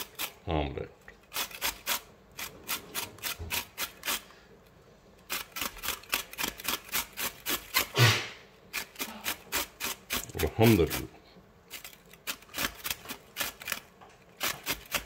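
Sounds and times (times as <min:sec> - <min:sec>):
chilli rasping on metal grater: 0:00.0 - 0:00.4, 0:01.3 - 0:04.3, 0:05.3 - 0:08.0, 0:08.7 - 0:11.1, 0:11.7 - 0:15.0.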